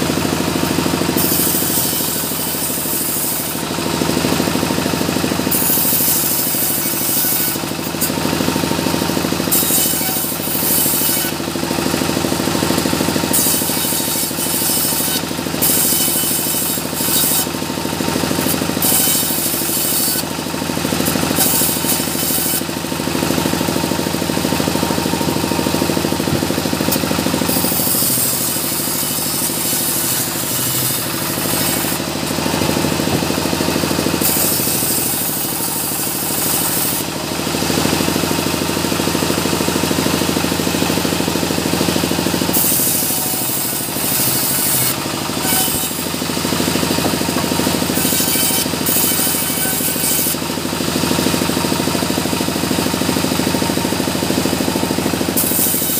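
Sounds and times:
engine running steadily: 0.0s - 55.9s
saw blade cutting wood: 0.0s - 55.9s.

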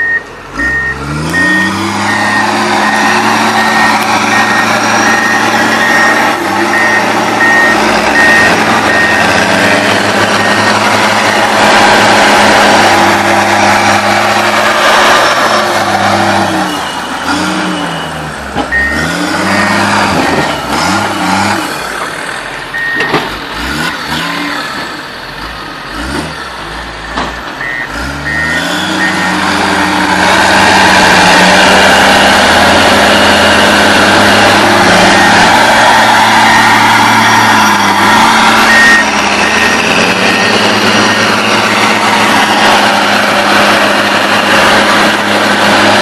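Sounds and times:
reversing alarm beeps: 0.0s - 11.6s, 16.5s - 21.0s, 22.7s - 23.1s, 27.0s - 29.5s, 35.0s - 42.9s
heavy diesel engines working: 0.0s - 46.0s.

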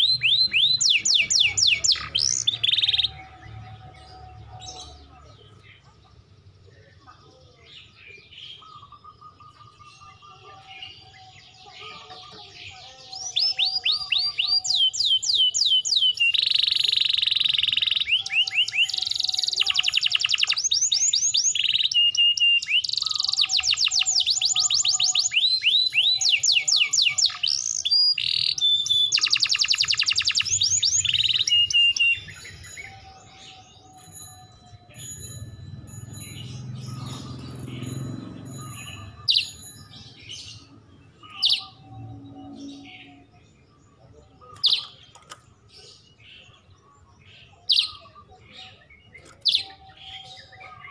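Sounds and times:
canary singing trills: 0.0s - 50.9s.

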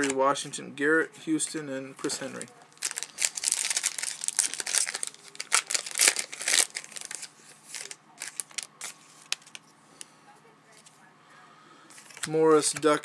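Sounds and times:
card pack wrapper crinkling and tearing: 2.3s - 9.6s.

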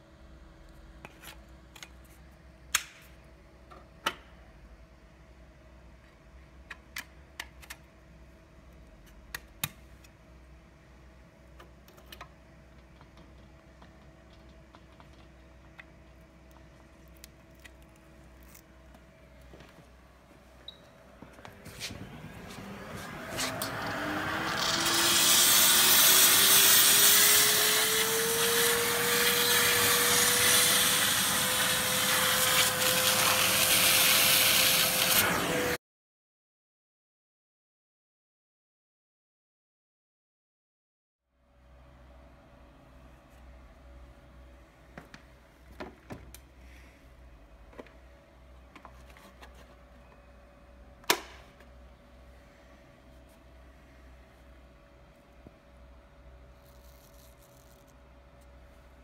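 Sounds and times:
faint steady hum: 0.0s - 24.6s, 41.4s - 59.0s
loud sharp click: 2.7s - 3.1s
motor whine: 21.1s - 35.8s
steam vacuum cleaner rushing: 21.6s - 35.8s.

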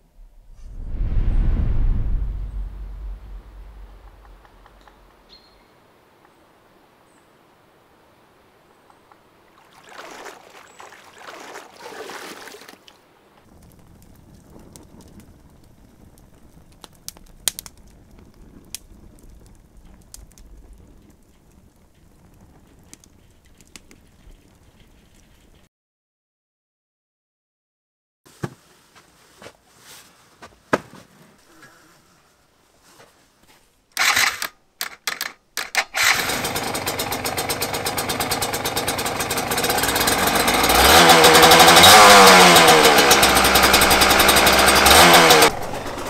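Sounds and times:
rushing hissing noise: 0.0s - 5.2s
rush of flames: 0.0s - 5.3s, 13.5s - 25.6s
wood fire crackling and popping: 1.9s - 5.3s, 13.4s - 25.7s.

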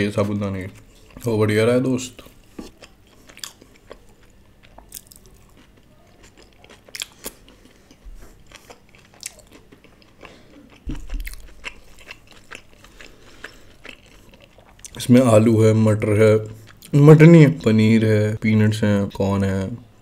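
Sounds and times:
person chewing food: 0.2s - 1.3s, 2.1s - 15.1s, 16.4s - 17.0s.

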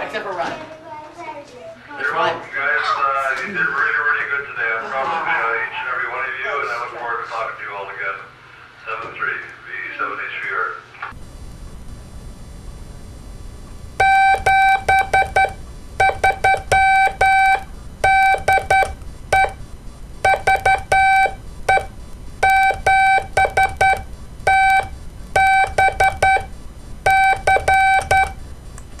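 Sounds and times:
morse code beeping: 14.0s - 19.6s, 20.2s - 28.4s.

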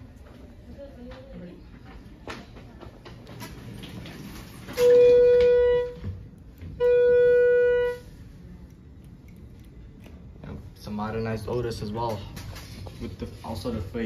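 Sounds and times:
elevator electronic beeps: 4.7s - 8.2s.

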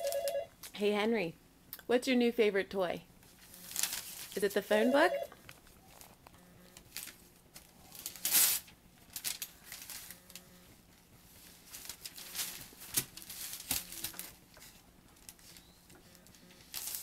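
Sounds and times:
paper crinkling and tearing: 3.3s - 4.5s, 5.8s - 10.4s, 11.3s - 17.0s.

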